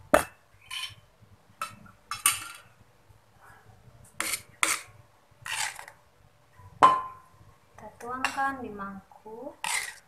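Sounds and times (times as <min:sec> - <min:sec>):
metal ladle scraping wok: 0:00.6 - 0:02.7, 0:04.2 - 0:06.0, 0:09.6 - 0:10.0.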